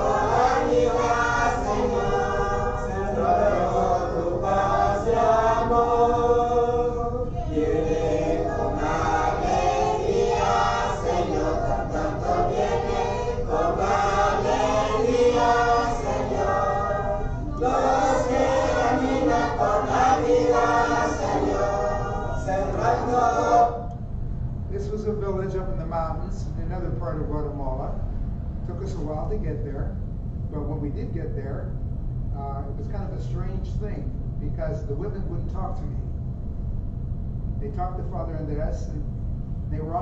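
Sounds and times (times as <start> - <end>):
choir chanting: 0.0 - 23.8.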